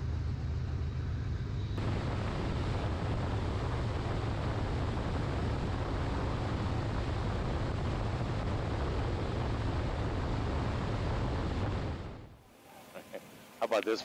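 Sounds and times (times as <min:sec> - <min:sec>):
motorcycle road rumble: 0:00.0 - 0:12.4
wind buffeting microphone: 0:01.7 - 0:12.3.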